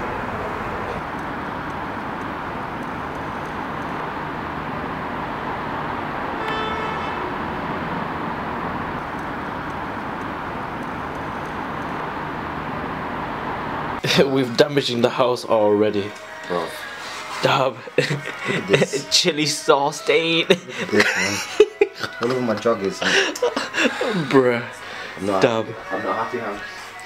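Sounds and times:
distant city traffic hum: 0.0s - 14.2s
car horn: 6.2s - 8.2s.

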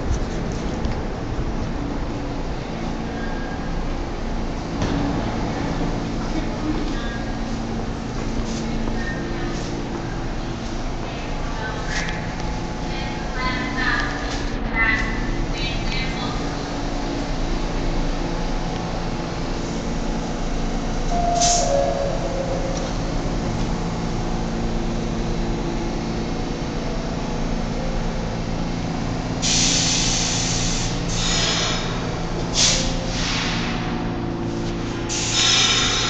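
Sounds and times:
subway train humming: 0.0s - 36.0s
two-note tone: 21.1s - 23.5s
short hissing bursts: 35.1s - 36.0s.

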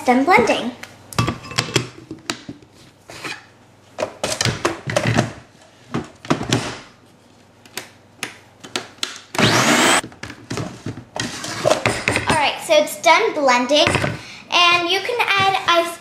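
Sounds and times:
kitchen things knocking and clattering: 1.2s - 2.6s, 4.0s - 5.4s.

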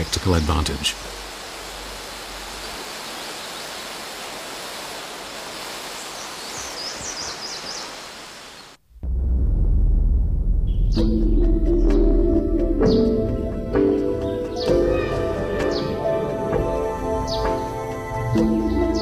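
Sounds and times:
waterfall and stream rushing: 0.0s - 8.8s.

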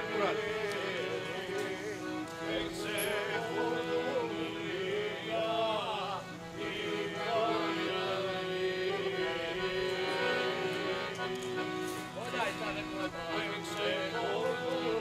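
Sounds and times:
voices singing folk song: 0.0s - 15.0s.

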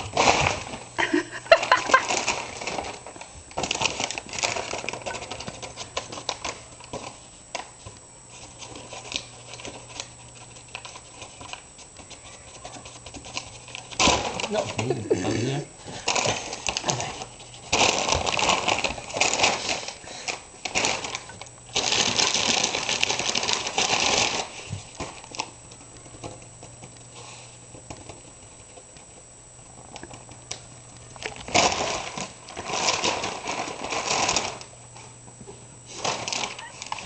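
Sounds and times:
plastic bag crinkling and rustling: 0.0s - 15.2s, 15.8s - 35.2s, 35.8s - 37.0s.

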